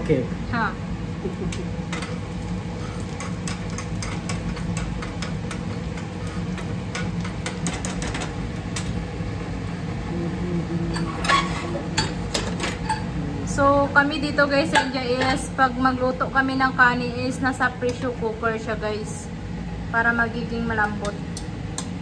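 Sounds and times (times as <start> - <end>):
low kitchen hum: 0.0 - 22.0
egg frying in oil: 0.9 - 10.1.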